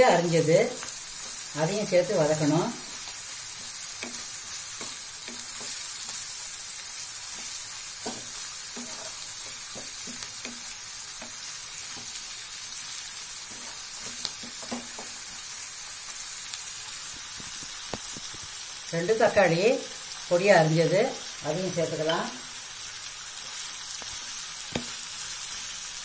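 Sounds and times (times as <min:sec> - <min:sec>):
vegetables sizzling in hot oil: 0:00.0 - 0:26.0
wooden spatula scraping pan: 0:07.3 - 0:12.2.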